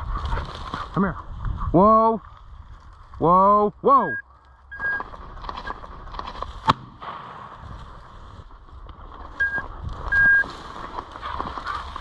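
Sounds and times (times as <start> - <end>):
rustle of dry grass: 0.0 - 3.4, 4.3 - 12.0
electronic beeps: 4.0 - 5.9, 9.4 - 10.5
shotgun shot: 6.6 - 7.6.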